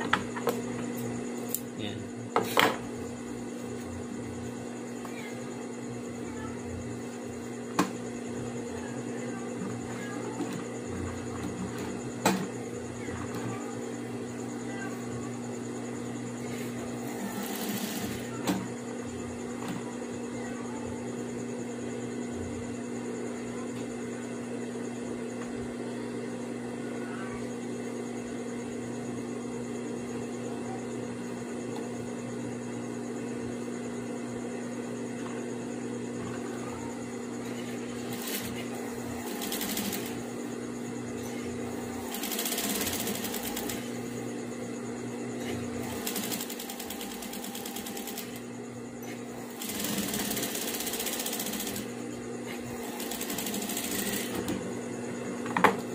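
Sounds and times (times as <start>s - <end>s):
sewing machine stitching: 17.0s - 18.3s, 38.0s - 40.2s, 42.0s - 43.9s, 45.8s - 48.4s, 49.4s - 51.9s, 52.6s - 54.5s.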